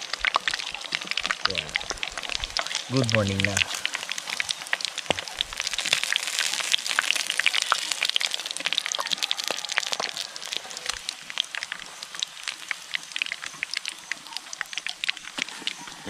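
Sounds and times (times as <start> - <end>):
deep-frying oil sizzling: 0.0 - 16.0.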